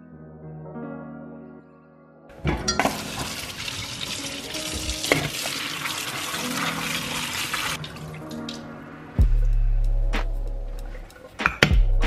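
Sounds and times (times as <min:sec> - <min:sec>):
tap water running into colander: 0:02.6 - 0:08.5.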